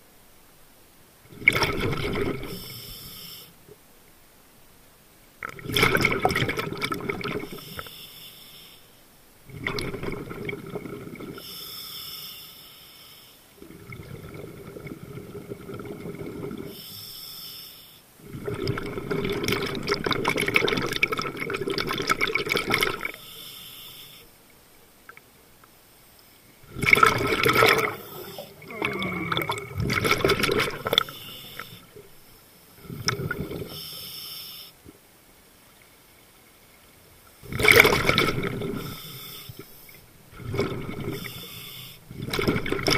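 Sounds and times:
scuba regulator breathing: 0:02.5 - 0:03.6, 0:07.5 - 0:09.0, 0:11.4 - 0:13.6, 0:16.6 - 0:18.1, 0:23.1 - 0:24.3, 0:27.6 - 0:29.8, 0:30.6 - 0:34.8, 0:38.6 - 0:40.0, 0:40.6 - 0:42.1
bubbling underwater: 0:26.6 - 0:31.2, 0:37.4 - 0:38.9.

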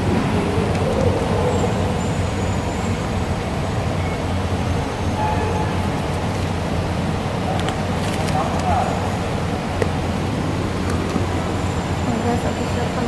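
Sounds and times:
train station rumble and hiss: 0:00.0 - 0:13.0.

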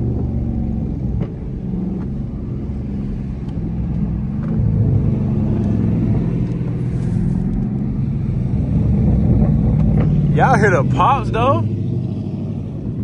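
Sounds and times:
car exhaust rumbling: 0:00.0 - 0:13.0
exhaust pops: 0:08.9 - 0:11.3.

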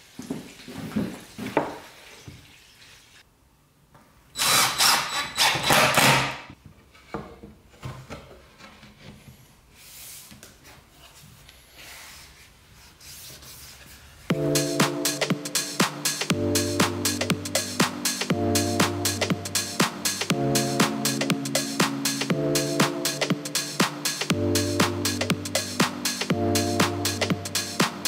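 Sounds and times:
cordless drill driving screw: 0:04.4 - 0:06.4.

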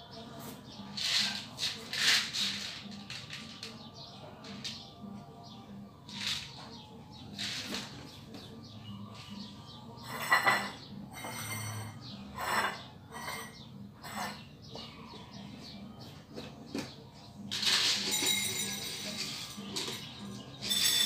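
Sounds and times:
small birds chirping: 0:02.9 - 0:17.5, 0:18.8 - 0:21.0.

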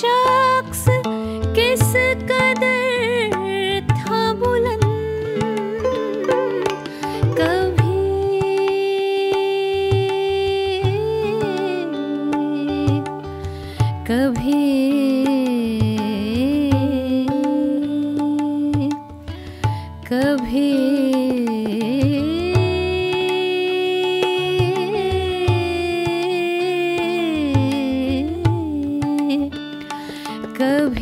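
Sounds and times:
electric guitar: 0:00.0 - 0:20.0
sitar: 0:00.0 - 0:31.0
tabla: 0:00.0 - 0:31.0
violin: 0:00.0 - 0:31.0
woman singing: 0:00.0 - 0:31.0.

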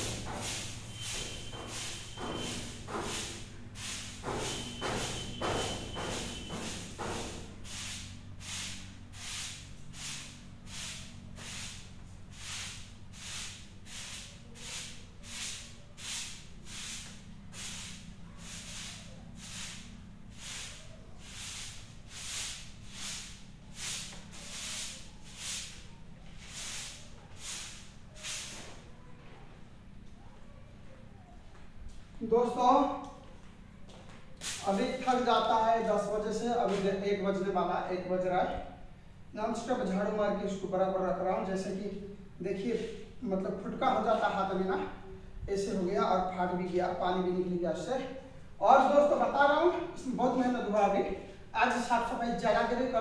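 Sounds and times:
broom sweeping concrete floor: 0:00.0 - 0:29.4, 0:34.4 - 0:37.3, 0:42.5 - 0:44.8.

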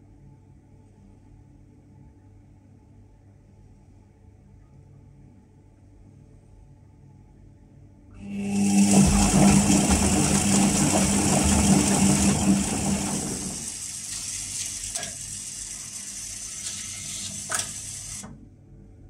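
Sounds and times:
washing machine motor hum: 0:08.2 - 0:18.4
washing machine clicks: 0:16.6 - 0:18.4.

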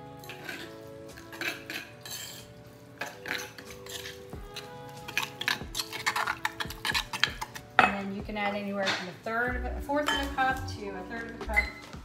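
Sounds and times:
soft background music: 0:00.0 - 0:12.0
spoon scraping stone mortar: 0:00.2 - 0:08.0.

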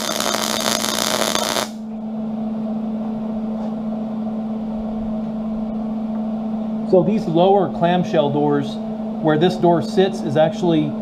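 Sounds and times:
crackling welding arc: 0:00.0 - 0:01.8
steady hum: 0:00.0 - 0:11.0.

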